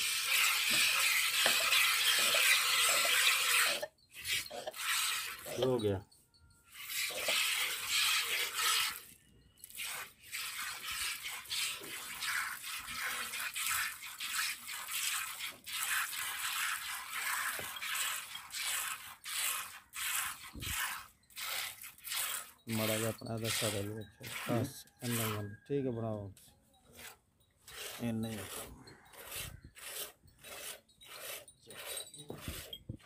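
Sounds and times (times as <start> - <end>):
milk squirting into bucket: 0.0 - 5.7, 6.8 - 25.4.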